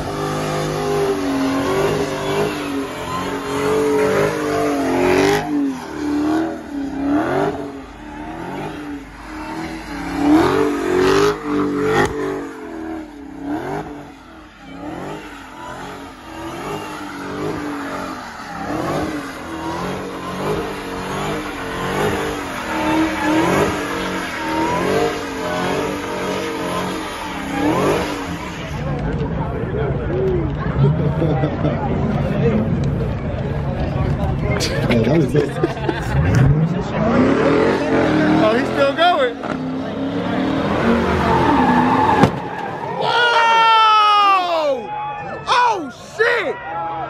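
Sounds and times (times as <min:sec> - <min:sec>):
car engine revving: 0:00.0 - 0:43.2
sharp cracks: 0:42.1 - 0:42.8.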